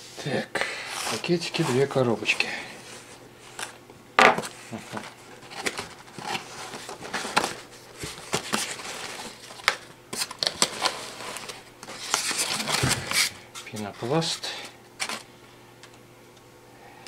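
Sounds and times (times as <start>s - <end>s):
cardboard box being opened: 10.2s - 13.4s.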